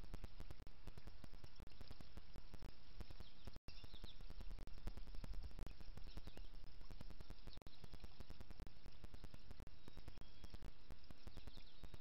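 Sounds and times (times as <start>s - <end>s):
faint bird chirps: 0.0s - 12.0s
outdoor hiss and low rumble: 0.0s - 12.0s.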